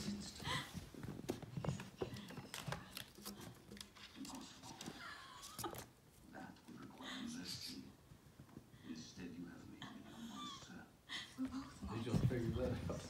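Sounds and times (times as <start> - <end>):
small dogs playing: 0.0 - 8.8, 11.4 - 13.0.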